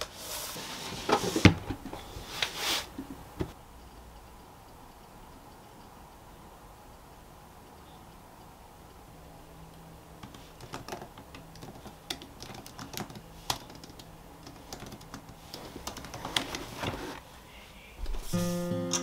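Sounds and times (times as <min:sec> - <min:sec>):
laptop keyboard typing: 0:10.2 - 0:16.8.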